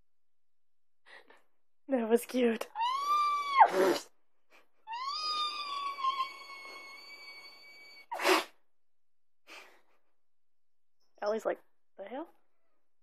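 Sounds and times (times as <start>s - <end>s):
cat yowling: 2.8s - 4.0s, 4.9s - 8.1s.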